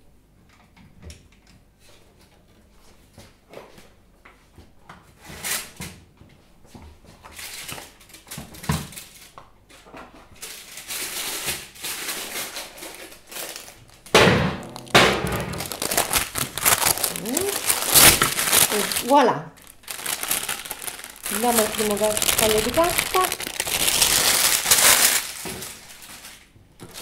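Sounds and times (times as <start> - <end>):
baking paper crinkling: 7.1 - 27.0.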